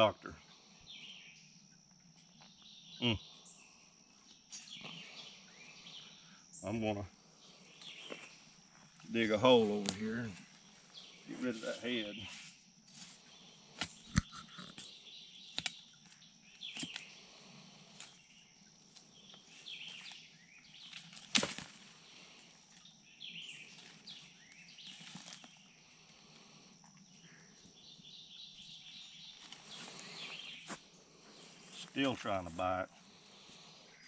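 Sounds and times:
insect drone: 0:00.0 - 0:34.0
shovel digging into soil: 0:20.9 - 0:21.8.

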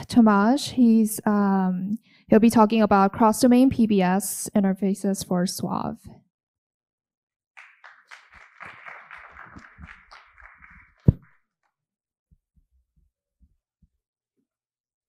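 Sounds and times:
muffled audience applause: 0:07.6 - 0:11.3.

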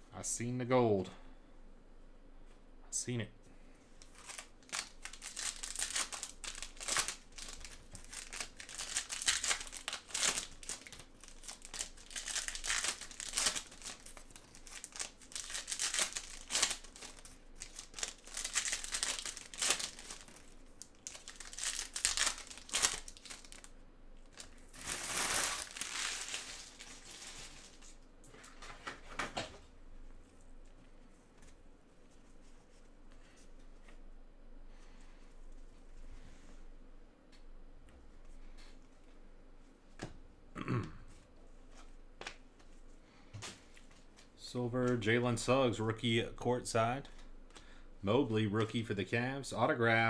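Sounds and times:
foil wrappers crinkling and tearing: 0:04.0 - 0:28.0.

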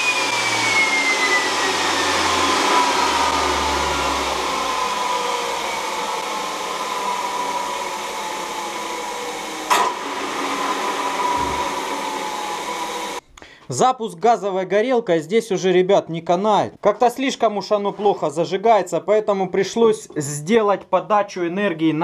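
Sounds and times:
turbine whine spinning down: 0:00.0 - 0:13.2.

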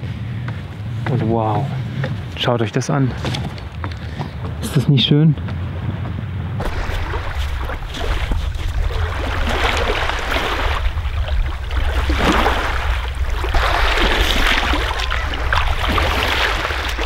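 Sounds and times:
low rumble: 0:06.2 - 0:17.0
small waves washing ashore: 0:06.6 - 0:17.0
water splashing: 0:06.6 - 0:17.0.

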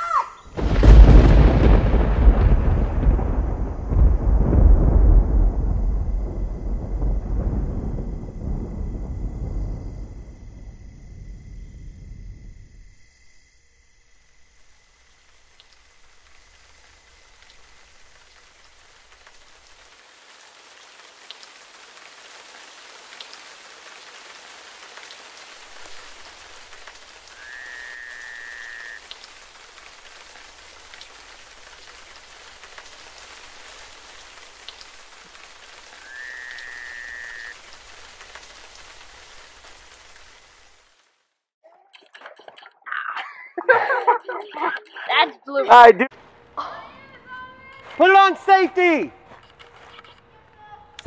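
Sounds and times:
steady hiss: 0:00.6 - 0:41.4.

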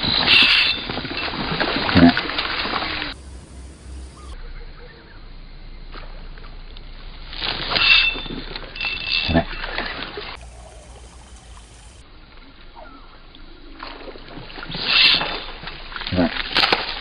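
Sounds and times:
fish splashing at water surface: 0:00.0 - 0:03.2.

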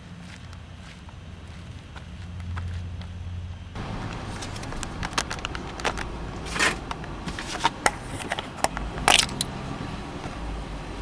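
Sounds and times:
scraping rustles: 0:04.2 - 0:08.7.

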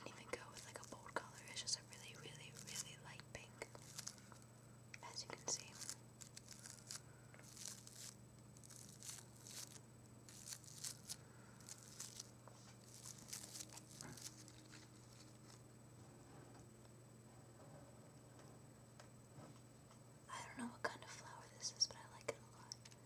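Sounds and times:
faint low hum: 0:00.0 - 0:23.0
flower petals rustling: 0:00.6 - 0:00.9, 0:02.4 - 0:03.0, 0:03.7 - 0:04.4, 0:05.4 - 0:15.6.

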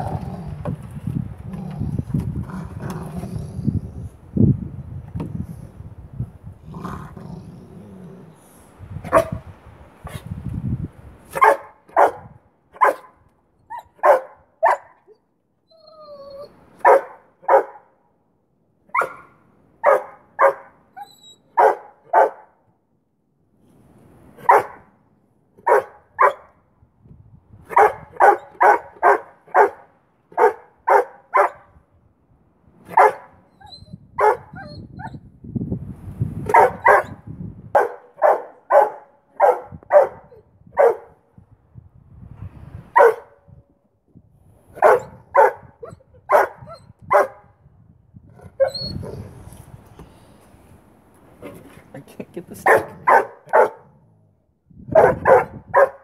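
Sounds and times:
puppy barking: 0:09.1 - 0:09.4, 0:11.3 - 0:15.2, 0:16.8 - 0:17.9, 0:18.9 - 0:20.8, 0:21.5 - 0:22.5, 0:24.4 - 0:24.8, 0:25.6 - 0:26.5, 0:27.7 - 0:31.7, 0:32.9 - 0:33.4, 0:34.2 - 0:34.8, 0:36.5 - 0:37.2, 0:37.8 - 0:41.2, 0:43.0 - 0:43.4, 0:44.8 - 0:47.5, 0:52.6 - 0:54.0, 0:54.9 - 0:56.0
puppy whining: 0:15.6 - 0:16.6, 0:20.9 - 0:21.5, 0:33.5 - 0:34.0, 0:48.6 - 0:49.4.

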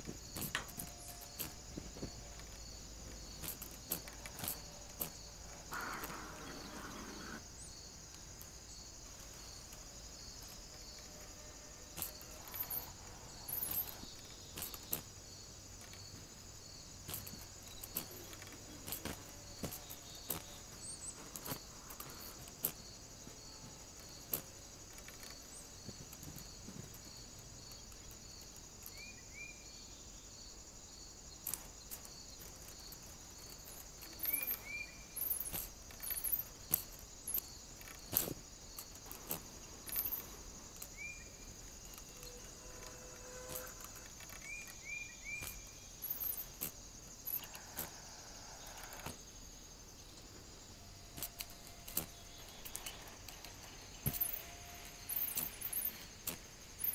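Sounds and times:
sharp ticks and knocks: 0:00.0 - 0:06.2
high insect buzz: 0:00.0 - 0:56.9.

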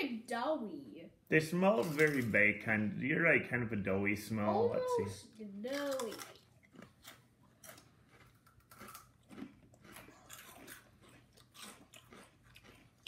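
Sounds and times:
crisp crunching of snacks: 0:05.6 - 0:13.0.

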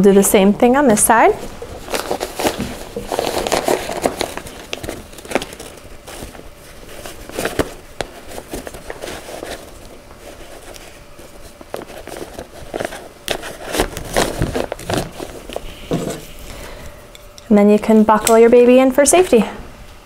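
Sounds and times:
fabric and strap webbing rustling: 0:00.9 - 0:16.4.

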